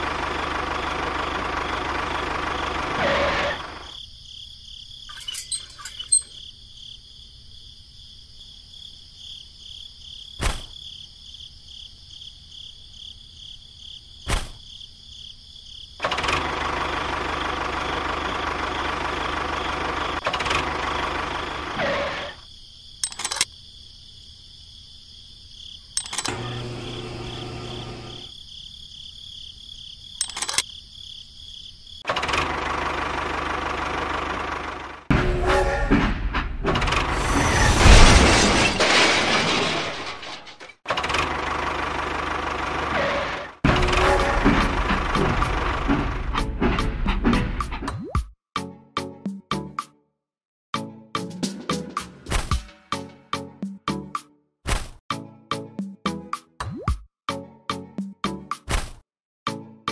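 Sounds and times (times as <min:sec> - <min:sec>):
sharp clicks and knocks: 0:26.0 - 0:26.4, 0:30.2 - 0:30.6
small electric motor running: 0:26.1 - 0:28.3.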